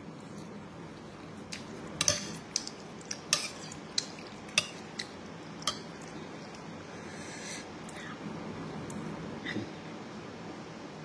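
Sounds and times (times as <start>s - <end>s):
metal spoon clinking on ceramic bowl: 2.0s - 2.7s, 3.3s - 6.0s.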